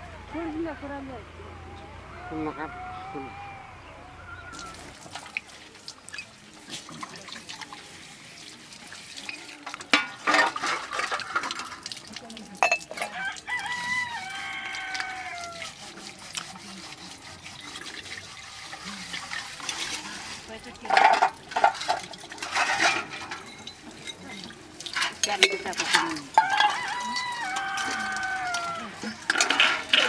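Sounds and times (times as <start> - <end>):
rooster crowing: 0.2 - 4.9, 13.0 - 15.7, 26.4 - 30.0
water running from a tap: 4.5 - 30.0
metal plates and cups clattering: 9.2 - 12.0, 12.6 - 13.2, 17.5 - 30.0.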